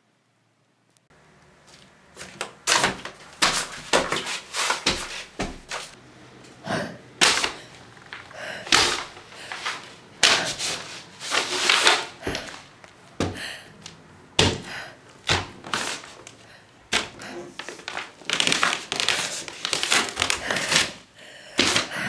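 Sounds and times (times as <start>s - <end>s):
flip-flop footsteps on carpeted stairs: 1.7s - 6.0s, 12.2s - 13.5s.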